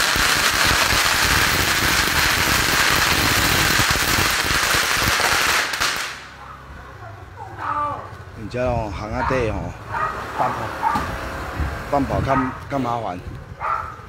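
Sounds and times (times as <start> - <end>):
firecrackers crackling: 0.0 - 6.7.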